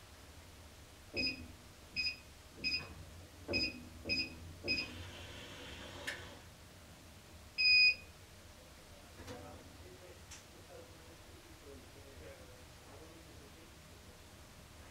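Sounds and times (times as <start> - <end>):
keypad beeps: 1.2 - 1.4, 2.0 - 2.9, 3.5 - 4.9.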